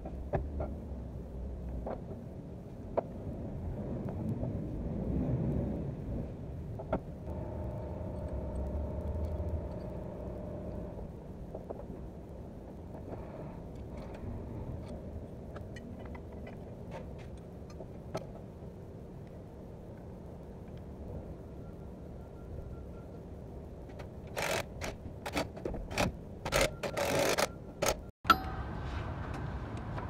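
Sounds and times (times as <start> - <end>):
steady low rumble: 0.0 - 23.9.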